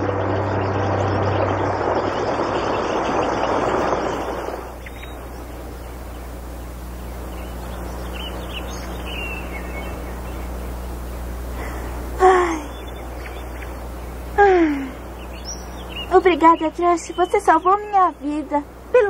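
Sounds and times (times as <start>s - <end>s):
low steady hum: 0.0s - 19.0s
bird wings fluttering: 2.6s - 5.2s
faint bird chirps: 2.6s - 10.9s, 12.4s - 18.6s.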